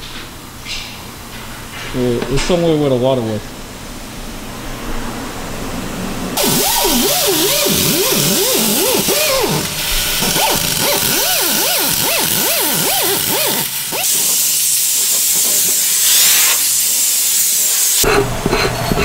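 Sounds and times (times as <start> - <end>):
compressed air hissing: 6.4 - 18.0.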